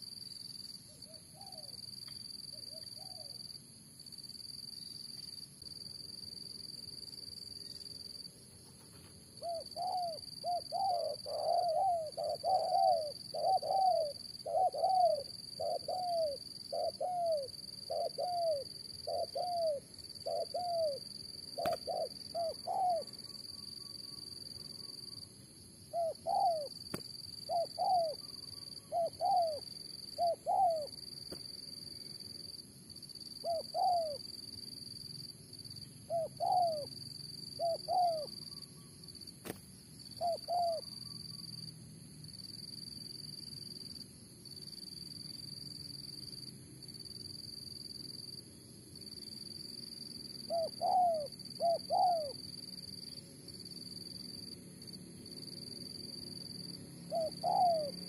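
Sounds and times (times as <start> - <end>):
insect drone: 0.0 - 58.0
doves cooing: 8.9 - 23.2, 25.9 - 26.8, 27.5 - 31.0, 33.4 - 34.2, 36.1 - 37.0, 37.6 - 38.4, 40.2 - 40.9, 50.5 - 52.4, 57.1 - 58.0.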